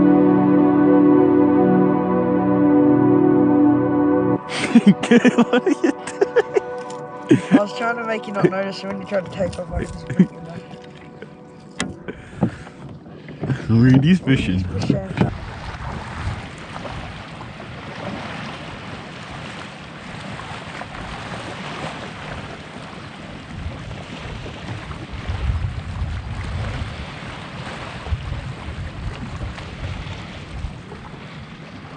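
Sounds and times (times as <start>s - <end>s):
water lapping against hull: 4.5s - 31.9s
wind buffeting microphone: 7.3s - 31.9s.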